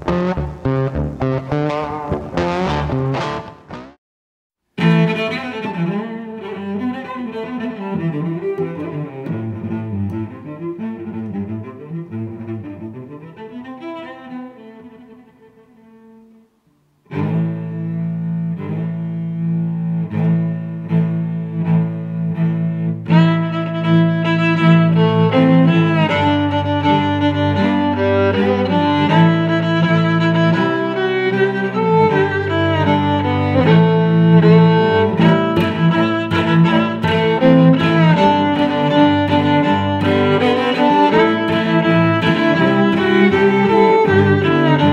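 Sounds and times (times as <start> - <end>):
instrumental background music: 0.0 - 4.0, 17.1 - 44.9.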